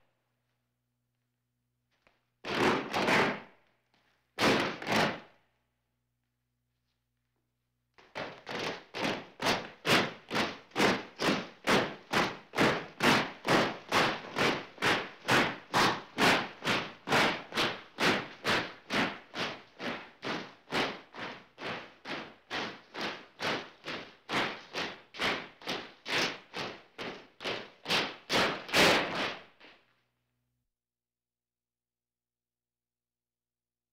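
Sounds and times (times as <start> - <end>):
marching feet stomping: 8.0 - 29.8.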